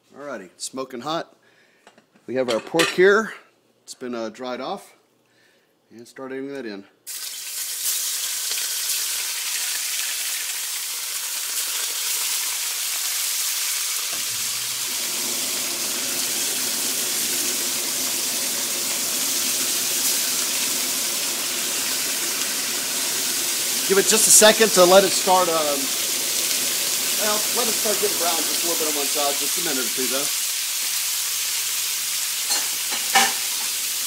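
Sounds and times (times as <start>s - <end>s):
meat sizzling in hot oil: 7.1s - 34.0s.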